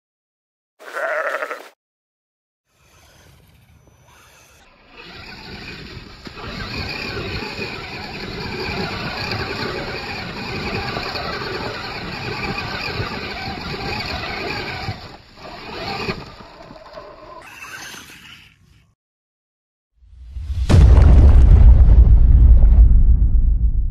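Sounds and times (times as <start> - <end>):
electric motor and drivetrain running: 2.8 - 18.6
tyres churning snow: 4.7 - 18.4.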